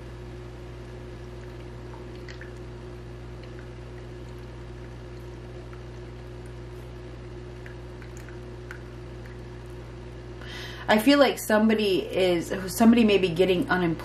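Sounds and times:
steady low hum: 0.0 - 14.0
water trickling in fountain: 1.3 - 6.6, 7.2 - 9.8.

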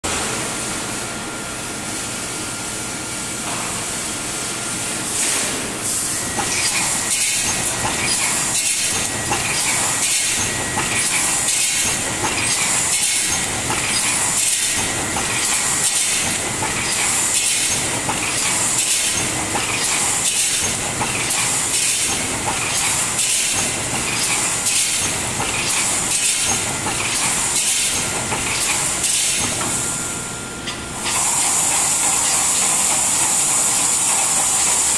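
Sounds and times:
welding machine knocking: 6.3 - 29.8.

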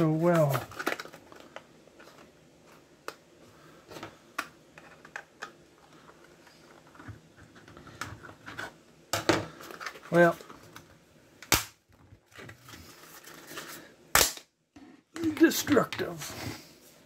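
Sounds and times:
sharp plastic snaps: 11.4 - 11.8, 14.1 - 14.5.

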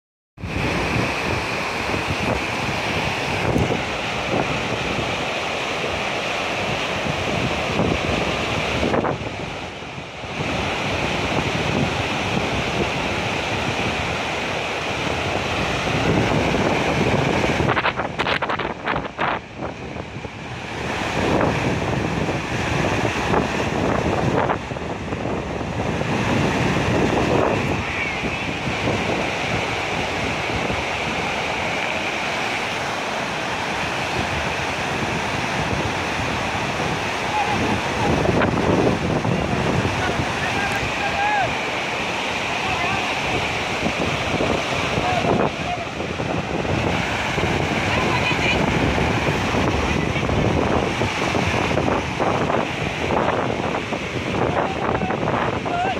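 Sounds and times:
river water rushing: 0.4 - 55.9
wind buffeting microphone: 0.4 - 55.9.

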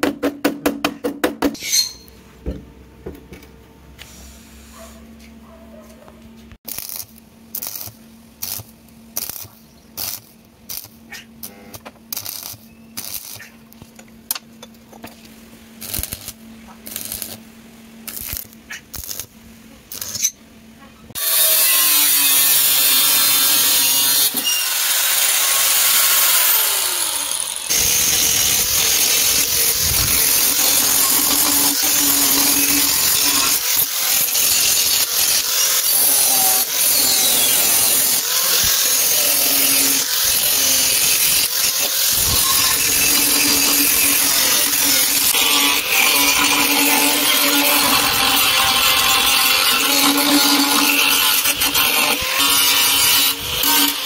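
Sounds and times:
welder hum: 6.6 - 20.4, 21.0 - 54.0
angle grinder on steel: 6.7 - 13.5, 15.8 - 17.4, 19.9 - 20.4, 21.1 - 54.0
welding arc crackling: 6.7 - 14.0, 15.8 - 20.4, 21.2 - 54.0.

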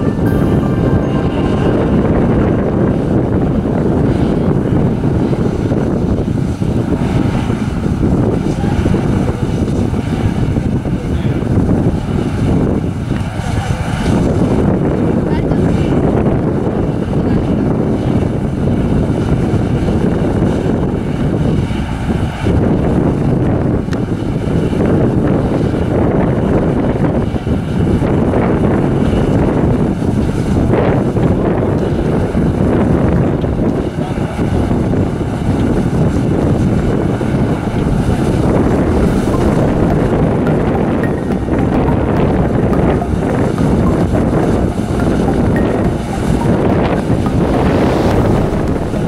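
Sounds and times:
wind buffeting microphone: 0.0 - 49.0.

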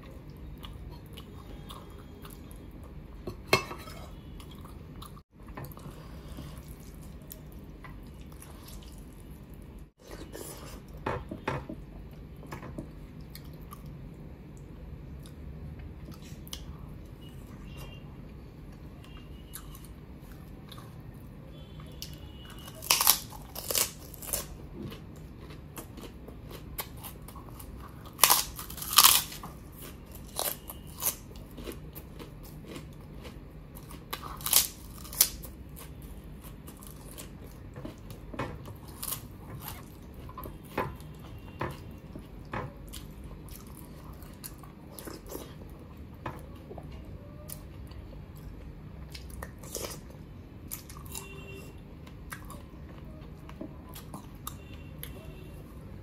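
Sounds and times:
person chewing: 0.0 - 11.0, 11.8 - 14.0, 15.1 - 55.7
crisp food crunching: 22.0 - 38.2.

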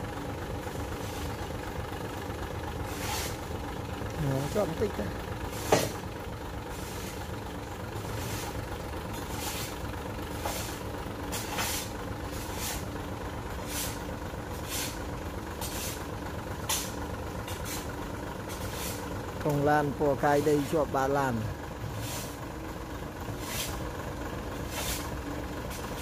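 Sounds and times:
diesel engine idling: 0.0 - 26.0
hissing scrapes: 2.8 - 3.5, 9.2 - 9.8, 10.4 - 12.9, 23.4 - 23.8, 24.6 - 26.0.

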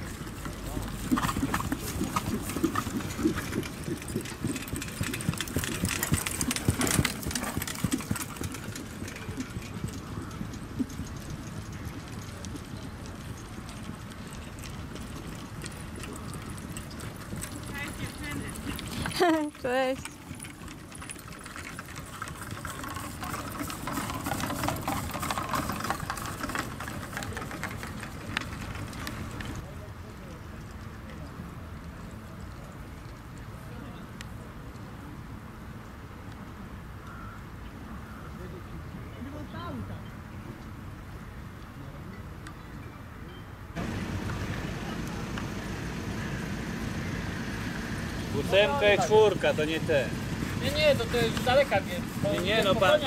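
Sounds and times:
hooves thudding on grass: 0.0 - 19.4, 43.8 - 53.0
trotting horses clattering: 0.0 - 29.7, 43.8 - 53.0.

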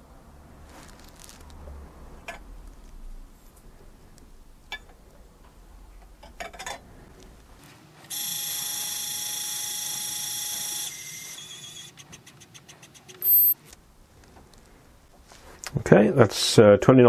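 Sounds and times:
powder dispenser motor whine: 8.1 - 11.9
short loud beep: 13.2 - 13.6.

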